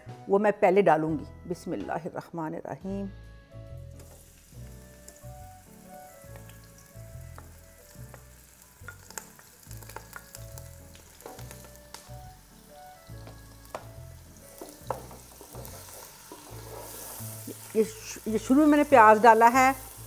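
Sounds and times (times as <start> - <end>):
onion sizzling in oil: 3.6 - 20.0
wooden spoon scraping a pot: 14.5 - 17.7.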